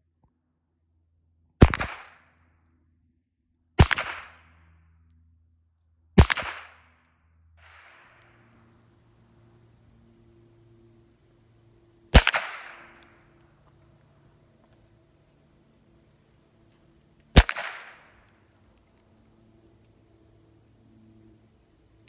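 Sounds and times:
gunshots with echo: 0:03.8 - 0:04.4, 0:06.2 - 0:06.8, 0:07.6 - 0:09.0, 0:12.1 - 0:13.4, 0:17.3 - 0:18.4.

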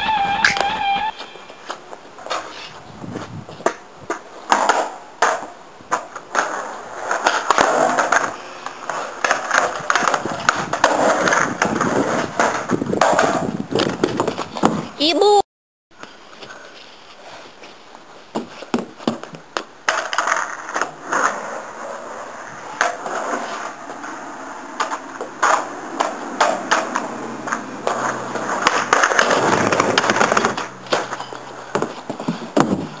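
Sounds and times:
skateboard wheels rolling on concrete: 0:00.0 - 0:33.0
skateboard deck clacking on ground: 0:03.5 - 0:14.9, 0:18.3 - 0:21.6, 0:22.6 - 0:33.0.

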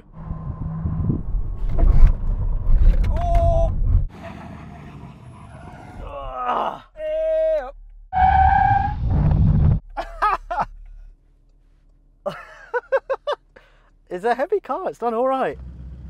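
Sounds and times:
low rumble: 0:00.0 - 0:04.1, 0:06.0 - 0:11.4.

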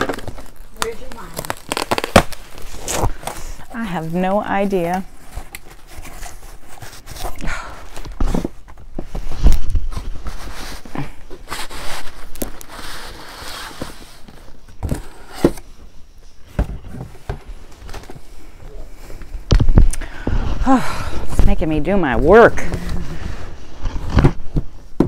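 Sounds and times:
cardboard rustling and scraping: 0:00.0 - 0:20.6, 0:22.6 - 0:25.0
knocks and thumps on box: 0:16.5 - 0:18.2, 0:24.0 - 0:25.0.

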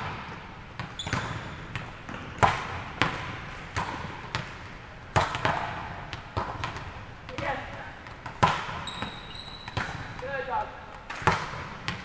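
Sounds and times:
volleyballs hit and bouncing: 0:00.0 - 0:12.0.

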